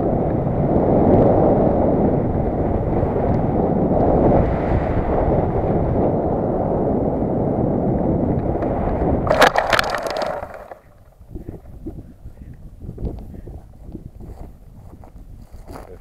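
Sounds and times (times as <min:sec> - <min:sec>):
wind noise on camera: 0:00.0 - 0:16.0
glider thumping and scraping on grass: 0:09.2 - 0:11.0.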